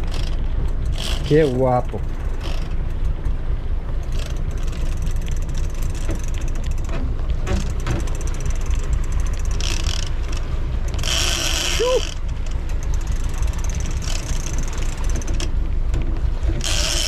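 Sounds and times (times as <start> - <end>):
boat engine rumbling: 0.0 - 17.0
faint light ticking: 0.1 - 11.4.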